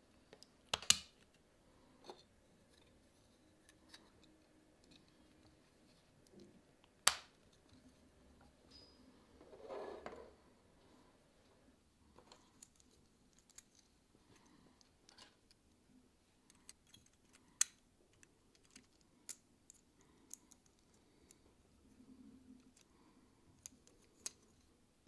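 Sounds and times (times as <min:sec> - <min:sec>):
plastic parts clicking together: 0:12.3 - 0:13.9, 0:16.5 - 0:21.4.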